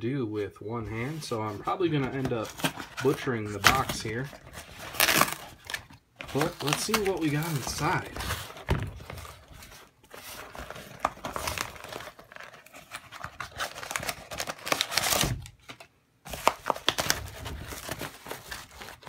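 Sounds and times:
cardboard box tearing and crumpling: 2.1s - 15.5s, 16.3s - 19.0s.

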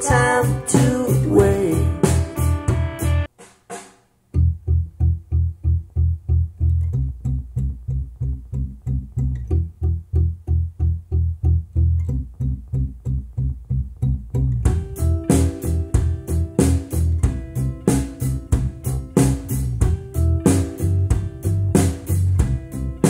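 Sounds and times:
plucked guitar and bass notes: 0.0s - 3.3s, 4.3s - 23.0s
song through loudspeakers: 0.0s - 3.3s.

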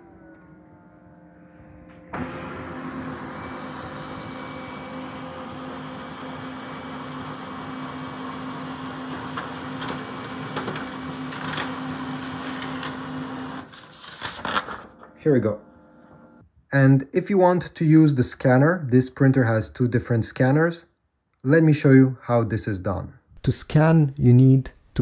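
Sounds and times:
printer whirring: 2.1s - 14.0s
printer paper feed clicks: 8.9s - 13.6s.

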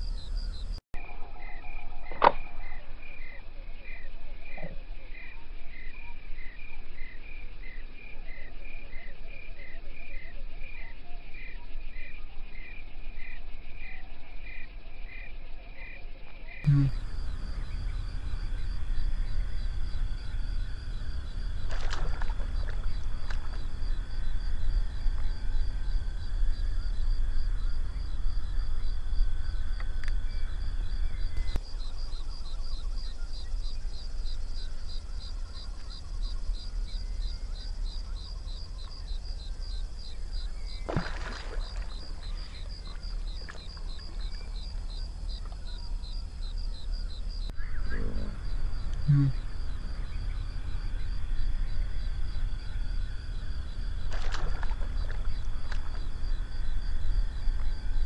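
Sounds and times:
insect pulsing trill: 0.0s - 9.8s, 16.6s - 58.0s
steady low rumble: 16.7s - 40.9s, 41.7s - 58.0s.

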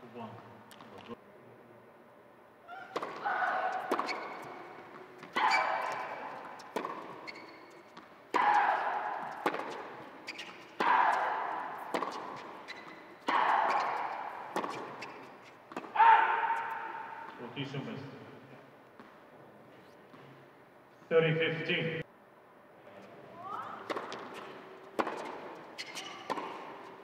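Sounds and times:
tennis racket striking ball: 2.9s - 17.3s, 23.8s - 27.0s.

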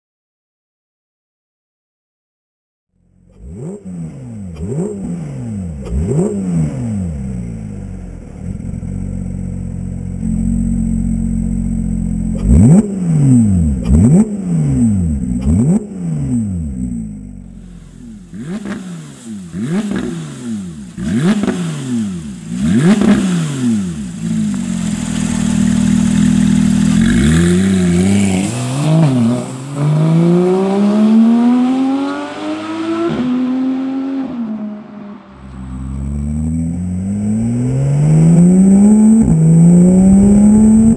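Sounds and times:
car engine revving: 3.1s - 40.9s
car accelerating hard: 12.3s - 17.0s, 17.6s - 40.9s.

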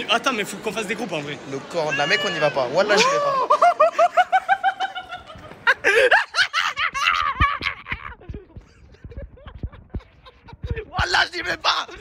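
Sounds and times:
young men laughing: 2.8s - 12.0s
microphone bumps: 6.8s - 11.0s.

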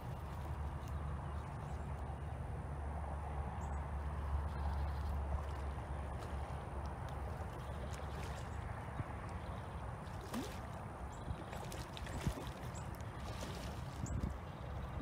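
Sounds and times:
steady low rumble: 0.0s - 15.0s
fish splashing at water surface: 5.3s - 14.2s.

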